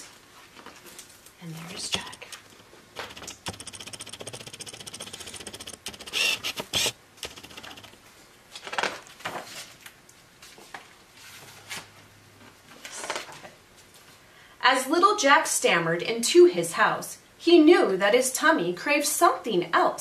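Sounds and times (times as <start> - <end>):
book pages turning: 0.6 - 8.0
paper rustles and knocks: 4.9 - 9.8.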